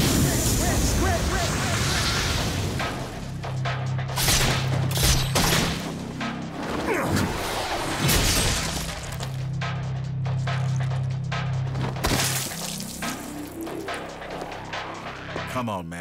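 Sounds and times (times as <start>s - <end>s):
sharp hits and crashes: 11.7s - 13.2s.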